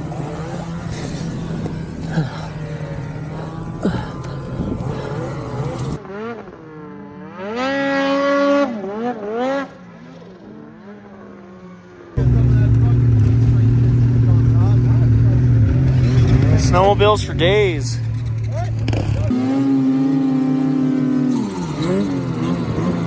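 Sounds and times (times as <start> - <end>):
wind and snow noise: 0.0 - 7.4
snowmobile engine revving: 0.0 - 23.0.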